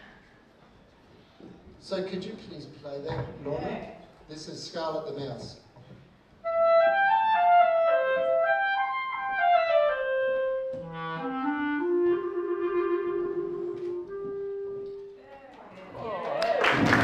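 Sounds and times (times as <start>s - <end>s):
solo clarinet melody: 6.4s - 15.2s.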